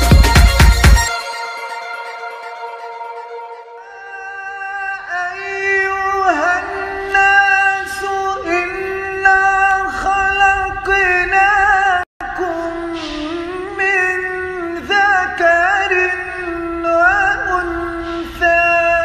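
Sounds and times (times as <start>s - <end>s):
man reciting melodically: 3.8s - 19.0s.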